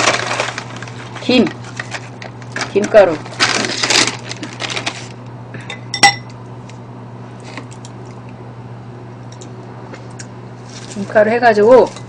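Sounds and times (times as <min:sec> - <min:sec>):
spoon clinking on ceramic bowl: 0:06.0 - 0:06.3.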